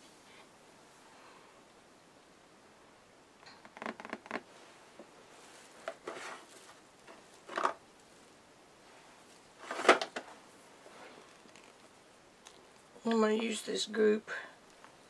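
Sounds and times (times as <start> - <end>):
craft supplies rustling: 5.0 - 7.8, 9.2 - 11.8.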